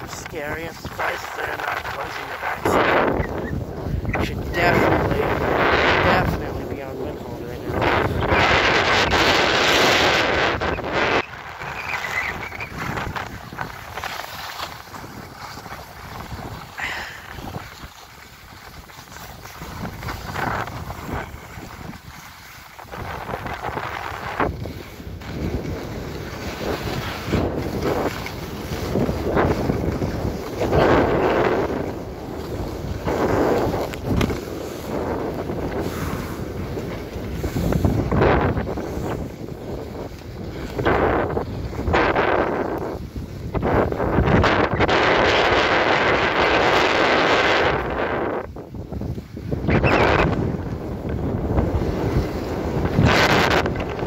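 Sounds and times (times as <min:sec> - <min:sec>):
movement over packed snow: 0:00.0 - 0:54.0
wind rushing over microphone: 0:00.0 - 0:54.0
faint scrapes: 0:26.4 - 0:39.4.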